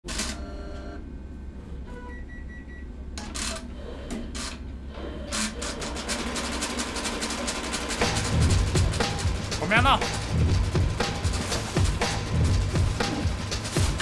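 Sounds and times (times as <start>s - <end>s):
embroidery machine hum: 2.9s - 14.0s.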